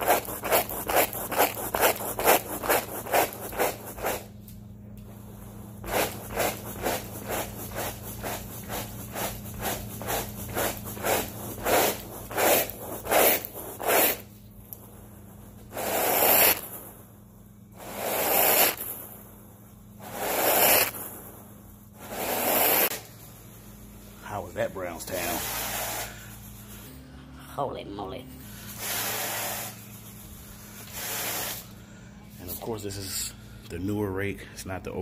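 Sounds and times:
rake dragged through carpet: 0:00.0 - 0:04.3, 0:05.2 - 0:14.3, 0:15.6 - 0:16.8, 0:17.8 - 0:19.2, 0:20.0 - 0:21.4, 0:22.0 - 0:23.5, 0:24.2 - 0:27.0, 0:28.5 - 0:31.7
brush scrubbing carpet: 0:00.0 - 0:04.4, 0:05.2 - 0:14.3, 0:15.6 - 0:16.9, 0:17.8 - 0:19.2, 0:20.0 - 0:21.2, 0:22.0 - 0:23.6, 0:24.2 - 0:26.9, 0:28.5 - 0:31.7.

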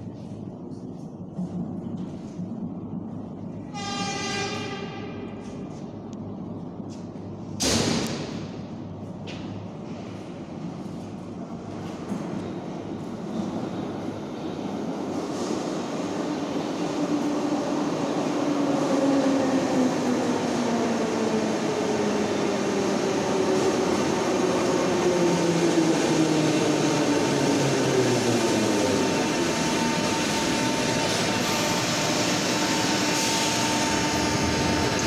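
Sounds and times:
metro train whine: 0:00.0 - 0:35.0
train hum: 0:00.0 - 0:35.0.

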